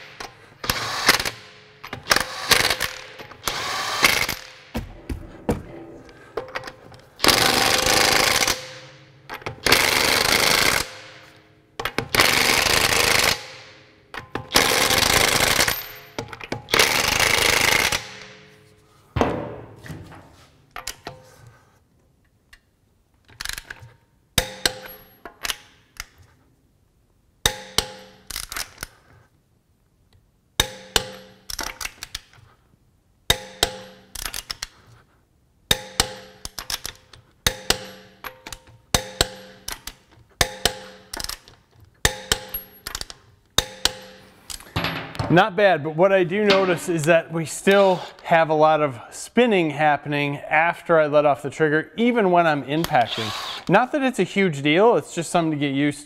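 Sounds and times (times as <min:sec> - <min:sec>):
impact wrench hammering: 0:24.4 - 0:25.1, 0:27.5 - 0:28.2, 0:30.6 - 0:31.5, 0:33.3 - 0:34.1, 0:35.7 - 0:36.8, 0:37.4 - 0:41.4, 0:42.0 - 0:45.3.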